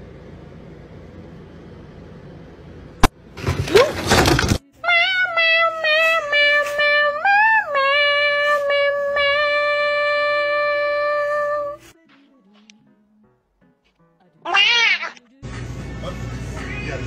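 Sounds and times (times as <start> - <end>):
high-pitched voice holding a note: 4.7 - 11.9.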